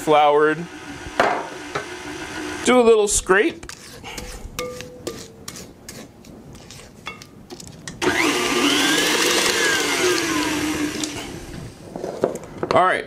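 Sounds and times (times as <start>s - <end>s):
spatula scraping glass bowl: 3.6s - 7.2s
stand mixer motor running: 8.0s - 11.2s.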